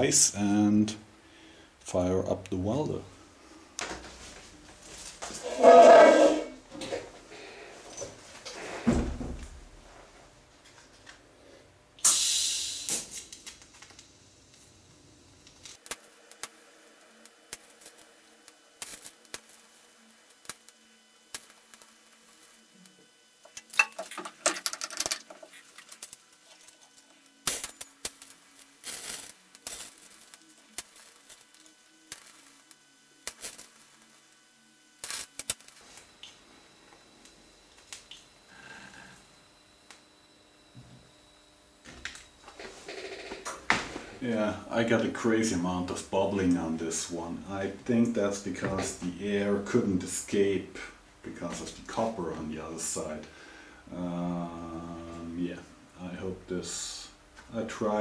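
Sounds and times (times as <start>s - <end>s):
short hiss: 12.0s - 13.3s.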